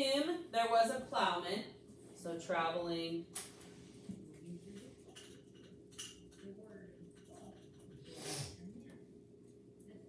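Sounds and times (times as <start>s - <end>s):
faint electrical hum: 0.0s - 10.0s.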